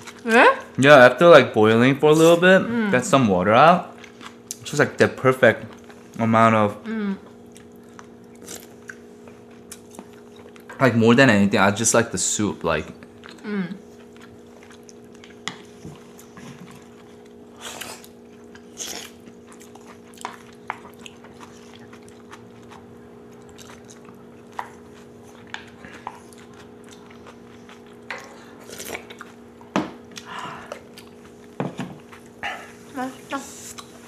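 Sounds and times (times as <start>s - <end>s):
steady low hum: 0.0s - 34.0s
chewing: 3.9s - 4.8s, 7.2s - 10.8s, 12.9s - 34.0s.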